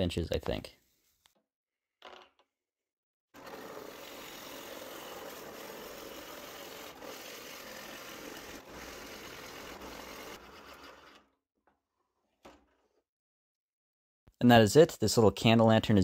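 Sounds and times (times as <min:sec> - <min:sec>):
drill bit cutting wood: 0:03.4 - 0:11.3
drill press motor whir: 0:03.4 - 0:11.3.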